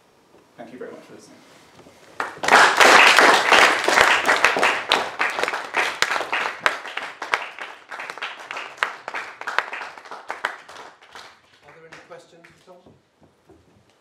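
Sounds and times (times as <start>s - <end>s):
audience applauding: 2.2s - 12.7s.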